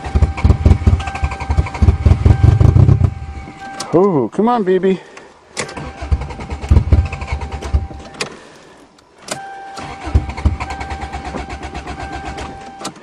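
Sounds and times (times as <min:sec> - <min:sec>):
engine cranking without starting: 0:00.0 - 0:03.2, 0:05.6 - 0:08.4, 0:09.3 - 0:13.0
starter motor whine: 0:00.0 - 0:03.5, 0:05.6 - 0:08.3, 0:09.3 - 0:13.0.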